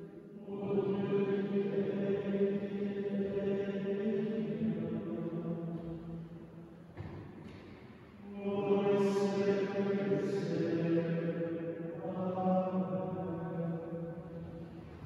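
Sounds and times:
men's choir singing plainchant: 0.4s - 6.1s, 8.2s - 14.6s.

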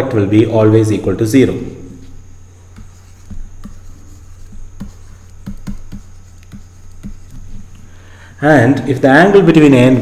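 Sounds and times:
low electrical hum: 0.0s - 10.0s
stylus clicking on pen tablet: 2.7s - 7.8s.

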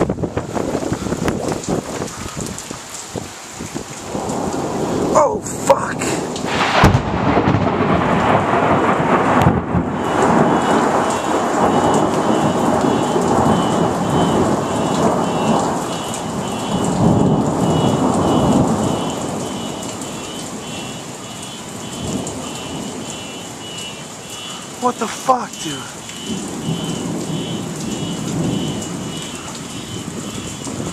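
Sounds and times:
thunder crack and rumble: 0.0s - 2.6s, 4.0s - 20.9s, 21.8s - 23.2s, 26.2s - 30.9s
heavy pouring rain: 0.0s - 30.9s
faint high beep: 10.0s - 24.6s.

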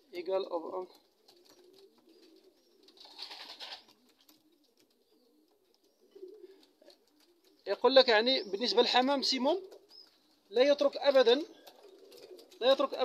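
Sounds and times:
pigeons cooing: 0.0s - 13.0s
brief rustle: 3.0s - 4.4s.

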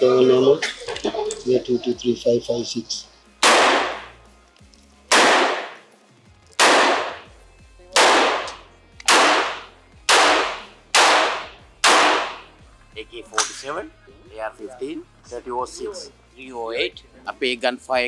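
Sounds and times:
rifle shots: 3.4s - 4.2s, 5.1s - 5.8s, 6.6s - 7.3s, 8.0s - 12.5s.

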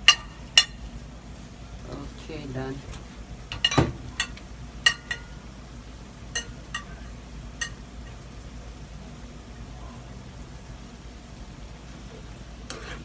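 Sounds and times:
metal spoon clinking on plate: 3.5s - 5.4s, 6.4s - 7.8s.

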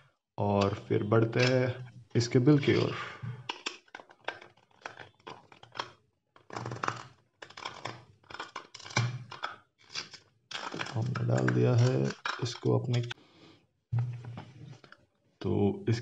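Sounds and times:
plastic capsule clicks and taps: 0.6s - 1.7s, 3.4s - 6.8s, 7.4s - 9.6s, 10.6s - 13.2s.

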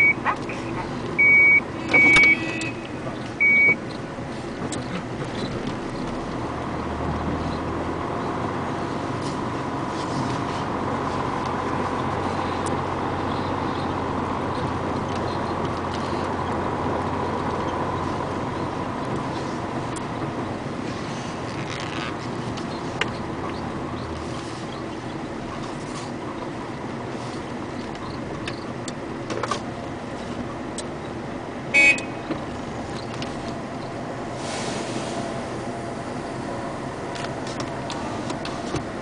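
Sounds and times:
reversing alarm beeps: 0.0s - 0.2s, 1.2s - 2.8s, 3.4s - 3.8s.

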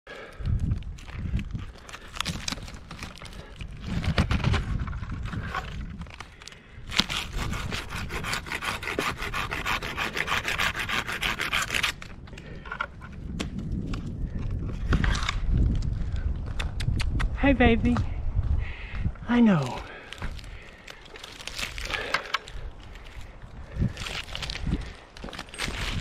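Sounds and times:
rope scraping against bark: 1.7s - 12.1s, 19.6s - 26.0s
fast rasping strokes: 7.0s - 12.0s.

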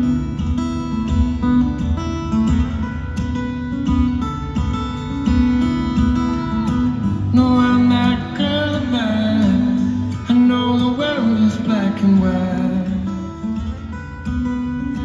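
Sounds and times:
amplified acoustic guitar: 0.0s - 15.0s
man singing: 7.2s - 13.7s.

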